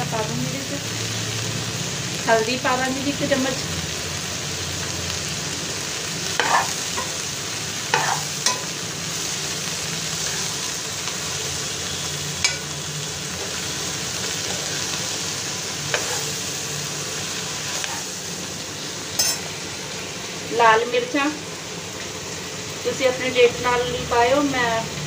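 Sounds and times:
food sizzling in oil: 0.0s - 25.0s
metal ladle clinking on pan: 8.0s - 8.7s, 19.2s - 19.4s.

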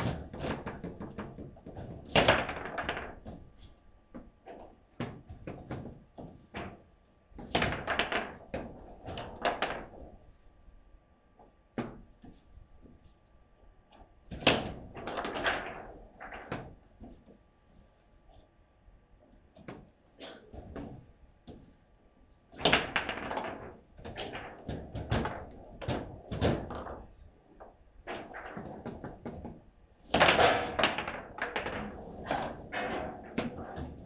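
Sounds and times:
foosball knocks and clacks: 0.0s - 6.8s, 7.4s - 10.2s, 14.0s - 17.3s, 22.5s - 34.0s.

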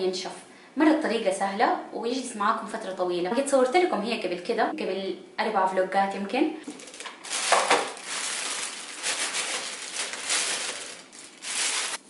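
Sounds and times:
plastic bag crinkling: 6.6s - 12.0s
herbs dropping into plastic basket: 6.7s - 12.0s.

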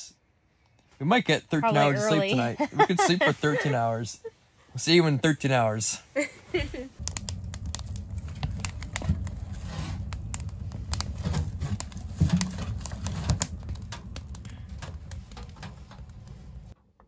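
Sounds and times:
low rumble of fire: 4.8s - 16.8s
wood fire crackling and popping: 7.0s - 16.8s.

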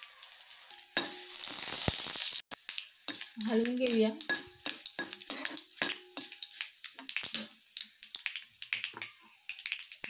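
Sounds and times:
spices crackling in hot oil: 0.0s - 10.0s
ladle scraping and clinking pan: 4.3s - 6.4s.

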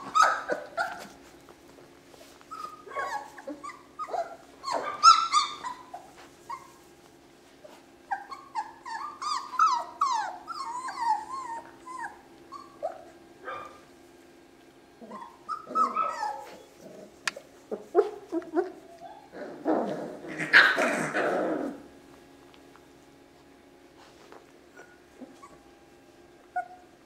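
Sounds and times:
puppies yipping and whining: 0.0s - 13.8s, 15.0s - 22.0s, 24.6s - 27.0s.

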